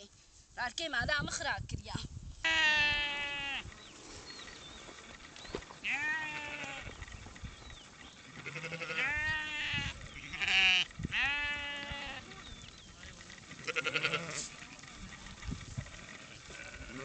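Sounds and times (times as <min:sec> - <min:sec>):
sheep bleating: 0:02.4 - 0:03.7, 0:05.8 - 0:17.0.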